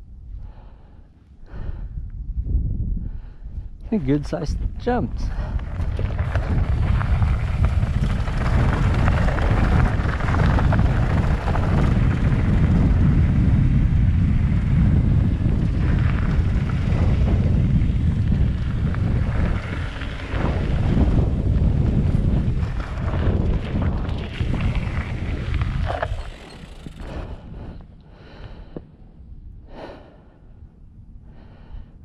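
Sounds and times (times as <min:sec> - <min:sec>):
wind buffeting microphone: 0:00.0 - 0:32.0
mountain bike rattling on dirt trail: 0:05.3 - 0:27.6.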